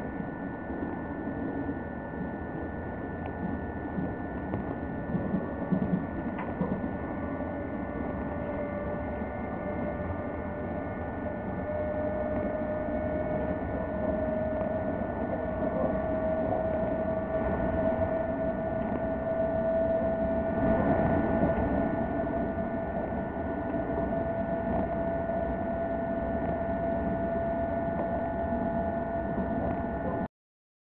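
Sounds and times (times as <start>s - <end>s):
traction motor whine: 0.0s - 30.2s
train wheels rumbling on rails: 0.0s - 30.2s.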